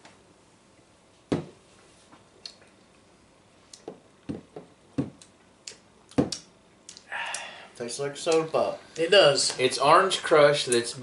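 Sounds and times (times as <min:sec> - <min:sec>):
person sipping a drink: 0:06.9 - 0:07.7.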